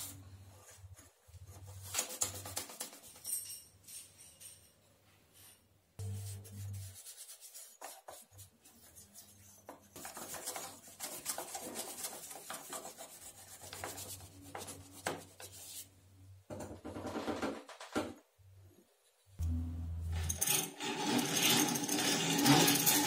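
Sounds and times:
cloth rubbing metal: 0:06.0 - 0:08.3
brush scrubbing metal: 0:06.0 - 0:15.9.

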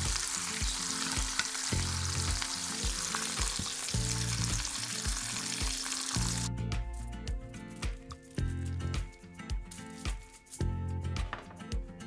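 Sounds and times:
music with low bass: 0:00.0 - 0:03.0, 0:04.0 - 0:12.0
steak sizzling in pan: 0:00.0 - 0:06.5.

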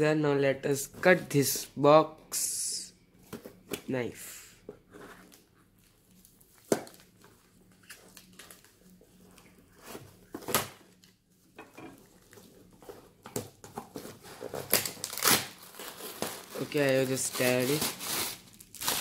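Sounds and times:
knife cutting packing tape: 0:14.6 - 0:16.6.

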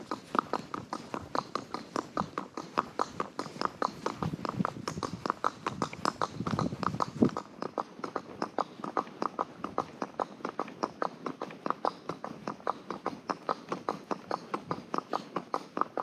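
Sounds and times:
loud hoof thud: 0:00.0 - 0:07.5
horse hooves clip-clopping: 0:00.0 - 0:16.0.

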